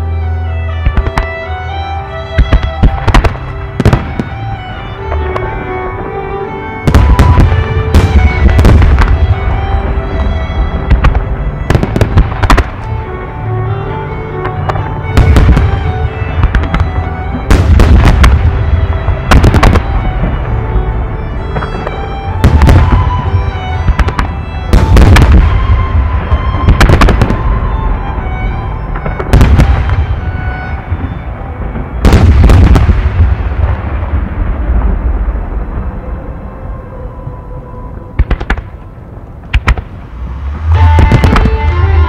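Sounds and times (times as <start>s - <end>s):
music playing: 0.0s - 42.0s
firework rumble and crackle: 2.4s - 6.1s, 6.8s - 13.4s, 14.4s - 42.0s
firework booms: 6.8s - 12.9s, 14.7s - 20.5s, 21.6s - 28.0s, 28.9s - 36.4s, 39.4s - 42.0s.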